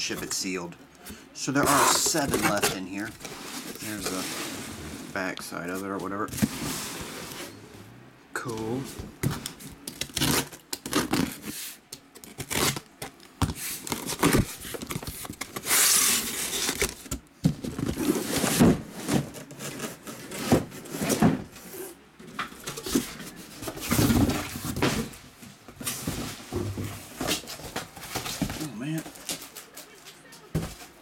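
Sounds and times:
cardboard scraping: 1.4s - 7.6s, 8.8s - 22.0s
packing tape tearing: 9.8s - 11.5s, 12.1s - 17.2s.

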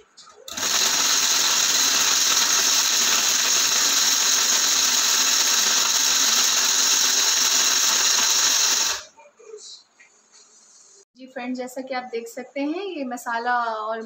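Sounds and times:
mixer-grinder whirring: 0.5s - 9.1s.

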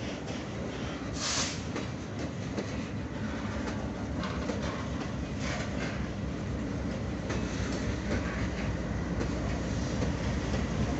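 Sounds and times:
freight train wheels clacking: 0.0s - 10.9s
short hiss: 1.2s - 1.8s.

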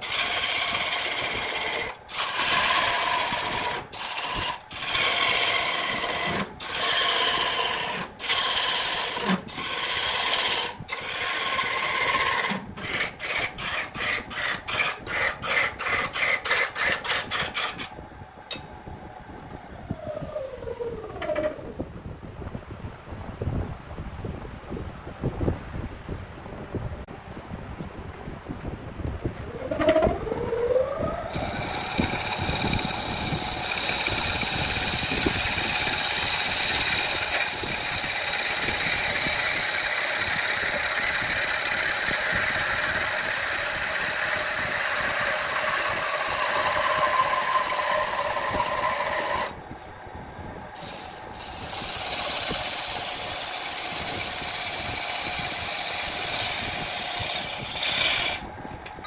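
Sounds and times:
wood lathe whine: 0.0s - 18.6s, 19.6s - 22.0s, 29.3s - 59.0s
gouge rasping on wood: 0.1s - 17.8s, 31.3s - 49.5s, 50.8s - 58.4s.

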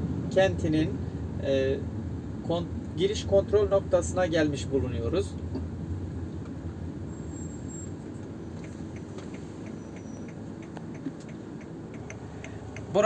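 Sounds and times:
car engine and road hum: 0.0s - 13.0s
faint short ticks: 8.6s - 12.9s.

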